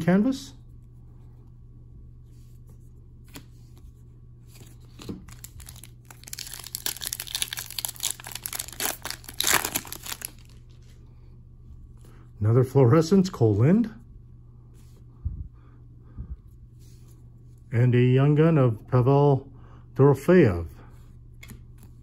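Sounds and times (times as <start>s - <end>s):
foil wrapper crinkling and tearing: 5.2s - 10.7s.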